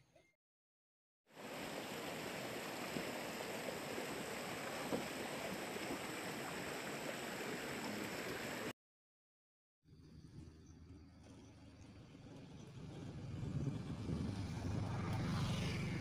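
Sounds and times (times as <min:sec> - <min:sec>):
rocky stream flowing: 0:01.4 - 0:08.7.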